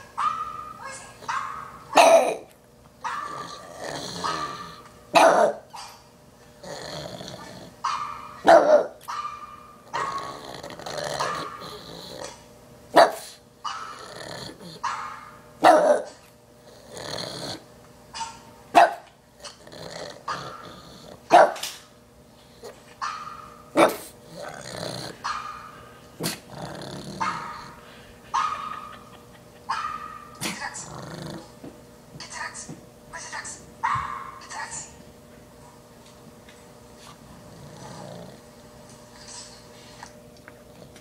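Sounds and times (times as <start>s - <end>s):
dog growling: 3.1s - 5.6s, 6.6s - 7.8s, 9.8s - 12.4s, 13.7s - 14.9s, 15.7s - 17.7s, 19.4s - 21.3s, 23.8s - 31.6s, 37.2s - 38.5s
dog barking sharply: 7.9s - 9.4s, 13.0s - 13.9s, 18.2s - 19.1s, 21.3s - 21.7s, 33.8s - 34.4s.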